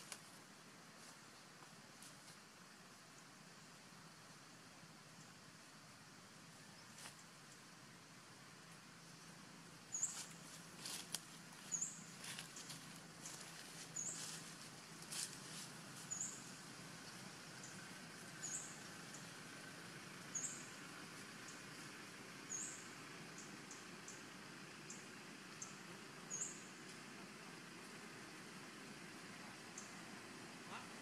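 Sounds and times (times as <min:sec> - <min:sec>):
leaves and twigs crackling: 0:00.0 - 0:00.4, 0:09.9 - 0:19.4
quiet forest background: 0:00.0 - 0:31.0.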